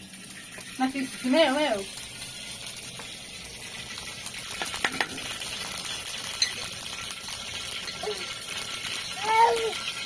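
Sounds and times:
fat sizzling in a hot pan: 0.0 - 10.0
spoon clicking against pan: 4.5 - 5.3.

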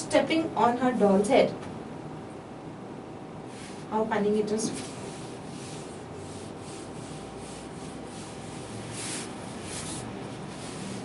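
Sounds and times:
eraser rubbing whiteboard: 3.5 - 3.9, 4.6 - 11.0.

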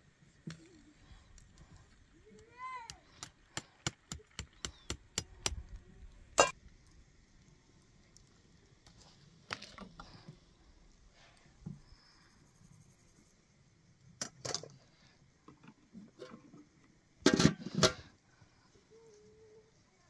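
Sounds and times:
metal lid clanking on pot: 17.3 - 18.0.

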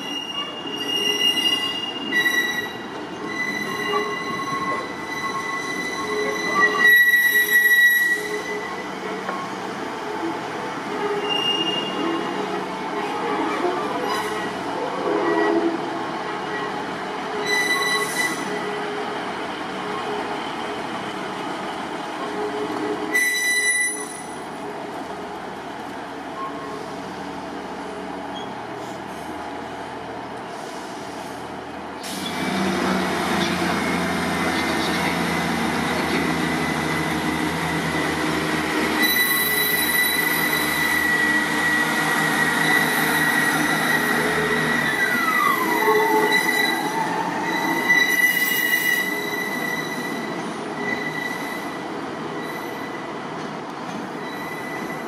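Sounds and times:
high-pitched wheel squeal: 0.0 - 9.5, 11.0 - 12.2, 17.4 - 18.6, 23.1 - 24.4, 39.0 - 51.8, 54.2 - 55.0
diesel train engine running: 28.7 - 39.0.

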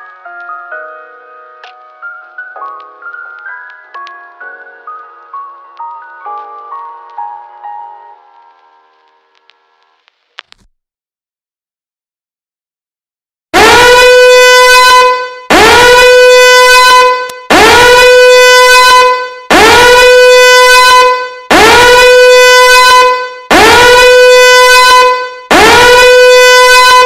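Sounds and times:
horn-like alarm blasts: 13.6 - 27.0.

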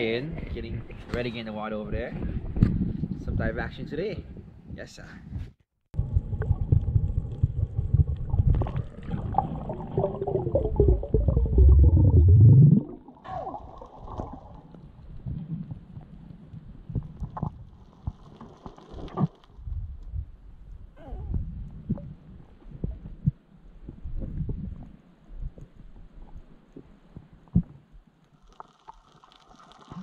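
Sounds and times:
water gurgling: 6.0 - 15.8, 28.3 - 30.0
muffled underwater rumbling: 6.0 - 26.5.

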